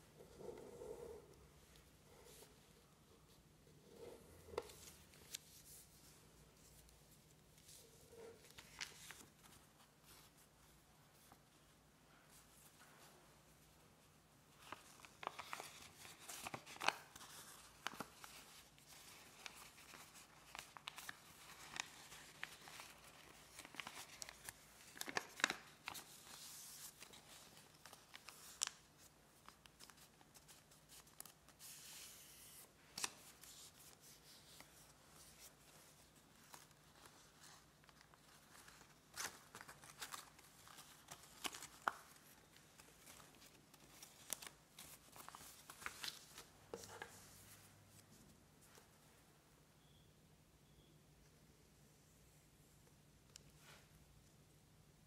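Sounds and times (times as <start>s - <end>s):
paper being folded and creased: 3.9s - 11.7s, 14.5s - 48.1s.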